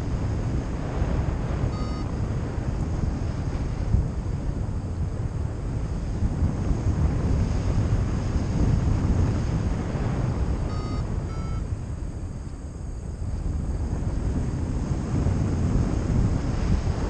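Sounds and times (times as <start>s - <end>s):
wind buffeting microphone: 0.0s - 17.0s
variometer beeps: 1.6s - 2.3s, 10.6s - 11.7s.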